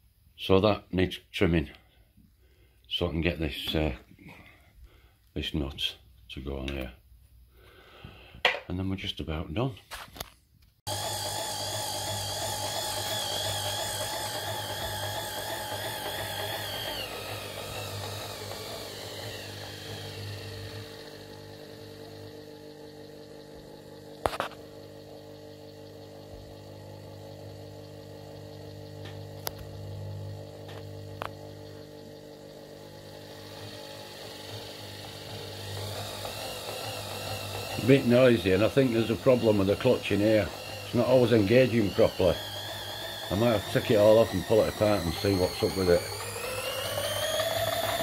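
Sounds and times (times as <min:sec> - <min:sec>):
power feed motor humming and whining: 0:10.9 - 0:48.0.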